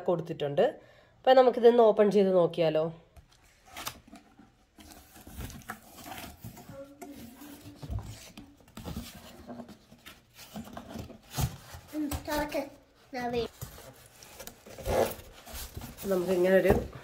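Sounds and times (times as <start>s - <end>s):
cardboard box rustling and scraping: 13.3s - 17.0s.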